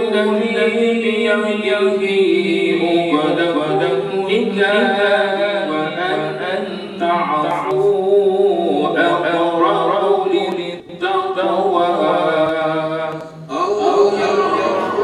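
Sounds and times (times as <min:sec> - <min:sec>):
man chanting melodically: 0:00.0 - 0:15.0.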